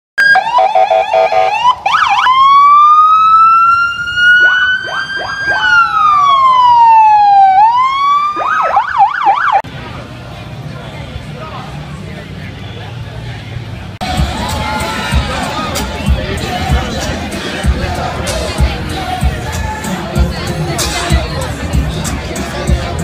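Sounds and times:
motorcycle electronic siren: 0.2 - 9.6
crowd murmur: 3.3 - 23.0.

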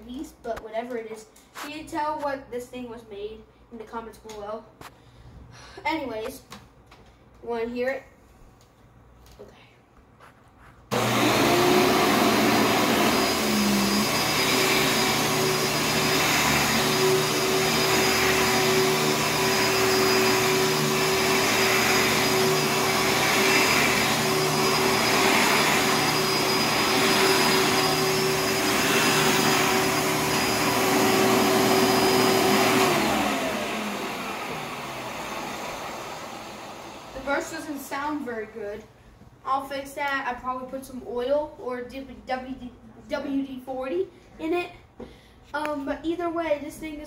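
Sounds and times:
vacuum motor winding down: 10.9 - 37.8
vacuum cleaner running: 10.9 - 38.6.

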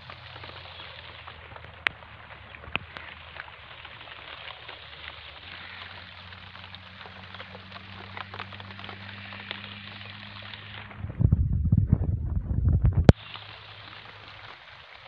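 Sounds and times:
rain pattering on leaves: 0.0 - 15.0
steady low hum: 10.6 - 13.2.

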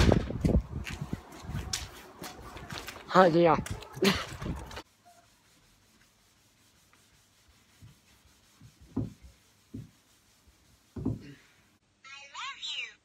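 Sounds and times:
hand rubbing wooden shelf: 4.5 - 11.4
soft knocks: 8.9 - 10.0, 10.9 - 11.4.

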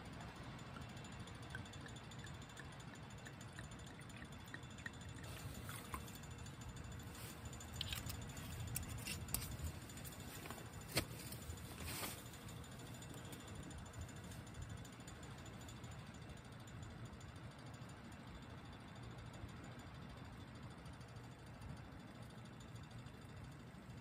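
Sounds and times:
low steady rumble: 0.0 - 24.0
wine pouring into metal cup: 0.8 - 6.4.

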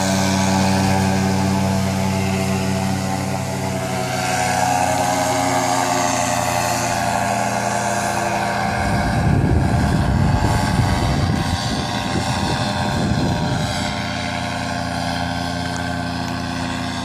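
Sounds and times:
paramotor engine and propeller: 0.0 - 17.0.

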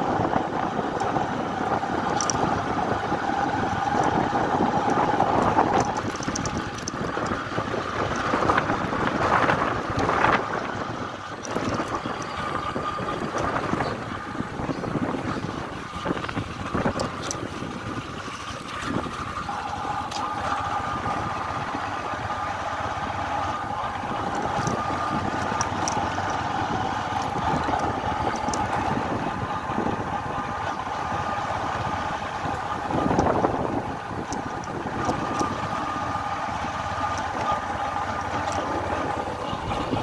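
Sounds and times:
lower whine: 0.0 - 40.0
motorcycle engine whine: 0.0 - 40.0
clicks and knocks from bumps: 4.8 - 7.4.

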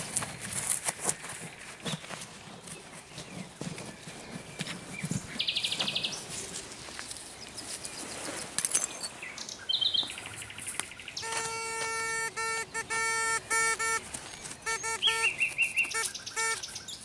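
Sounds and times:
nightingale singing: 8.8 - 17.0
metal detector pulsing tone: 11.2 - 16.6.

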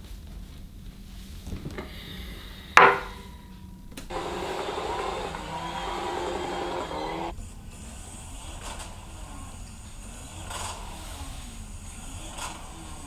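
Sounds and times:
steady muffled noise: 0.0 - 13.0
hard object knocking on wooden table: 2.8 - 3.0.

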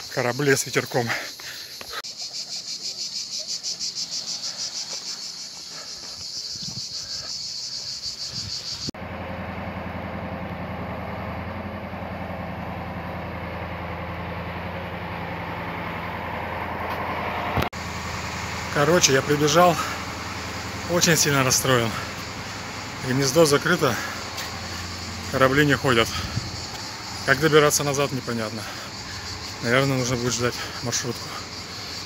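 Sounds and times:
cicadas singing: 0.0 - 32.0
truck engine idling: 1.3 - 32.0.

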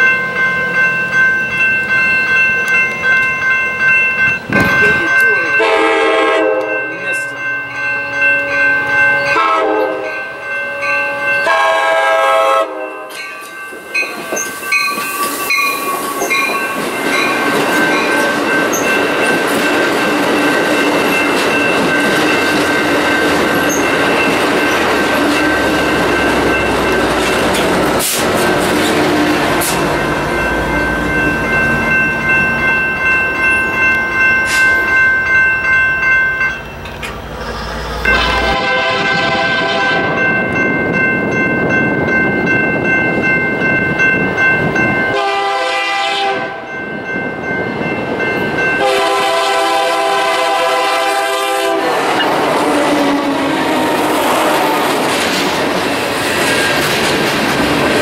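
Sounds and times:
crossing bell ringing: 0.0 - 58.0
train horn: 5.6 - 7.0, 9.2 - 13.1, 28.1 - 29.8, 38.1 - 40.2, 45.1 - 46.7, 48.8 - 54.8
train wheels clattering over rail joints: 54.2 - 58.0.

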